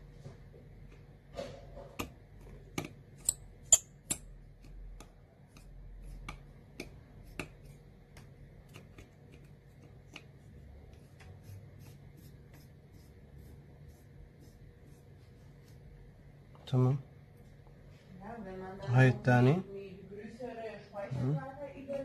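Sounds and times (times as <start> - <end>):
small metallic screw clicks: 3.2 - 4.3.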